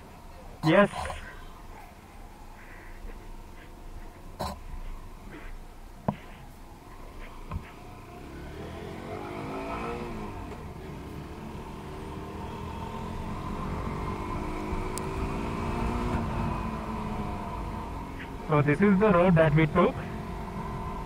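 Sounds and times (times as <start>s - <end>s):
motorcycle engine accelerating: 7.8s - 18.5s.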